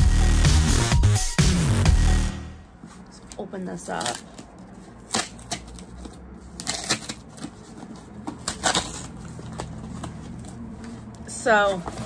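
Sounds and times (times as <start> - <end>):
packaging rustling and scraping: 2.8 - 12.0.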